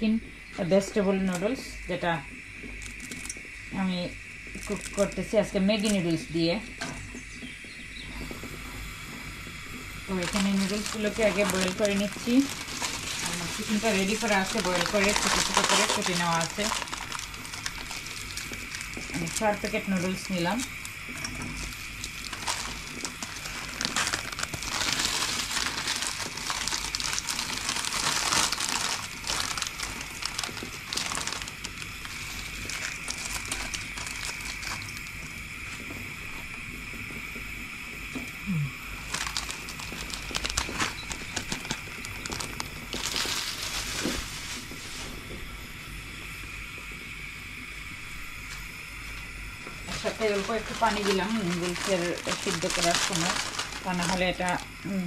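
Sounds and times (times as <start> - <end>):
steady hiss: 0.0 - 55.0
plastic packets crinkling: 2.7 - 3.4, 4.5 - 6.0, 10.1 - 35.8, 38.9 - 44.8, 49.8 - 54.8
dry noodles crumbling: 2.7 - 3.5, 4.5 - 6.0, 10.1 - 35.9, 38.4 - 45.0, 49.8 - 54.9.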